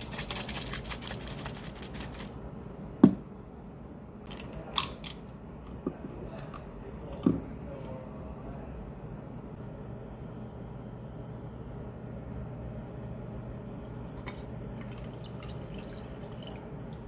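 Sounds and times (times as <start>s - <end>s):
can being shaken: 0.0s - 2.4s
can knocking on wooden desk: 3.0s - 3.2s.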